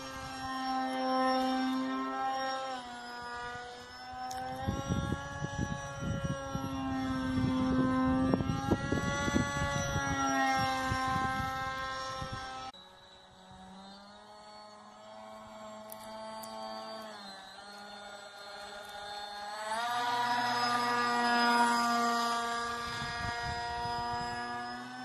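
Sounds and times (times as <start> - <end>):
model plane propeller whine: 0.0 - 25.0
wind buffeting microphone: 3.2 - 12.7, 19.7 - 25.0.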